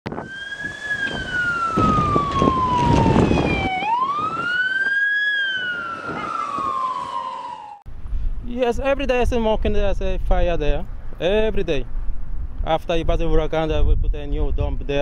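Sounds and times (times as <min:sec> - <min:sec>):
fire truck siren wailing: 0:00.1 - 0:07.8.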